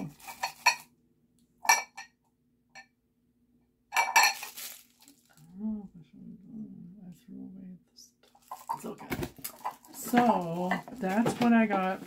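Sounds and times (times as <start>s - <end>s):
spoons and bowls clinking: 0.0s - 0.9s, 3.9s - 5.1s.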